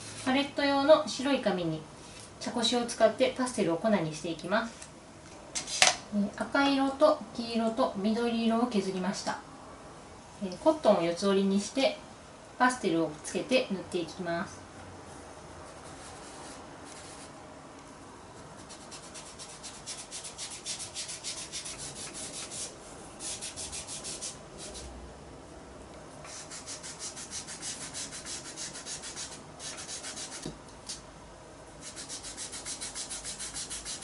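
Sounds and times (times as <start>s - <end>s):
cotton pad rubbing on paper: 26.3s - 30.4s, 31.8s - 34.0s.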